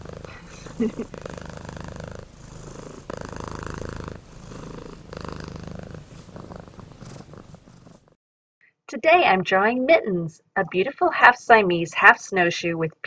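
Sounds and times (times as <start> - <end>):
cat purring: 0.0 - 8.2.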